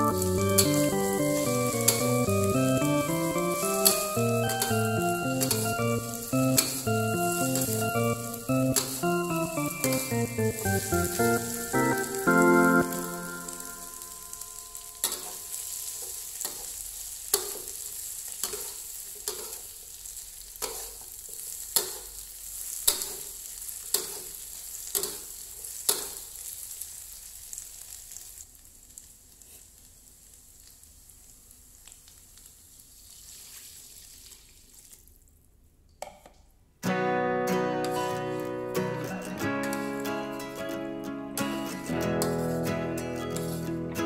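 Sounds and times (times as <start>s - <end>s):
food sizzling in oil: 0.0s - 34.9s, 42.1s - 43.8s.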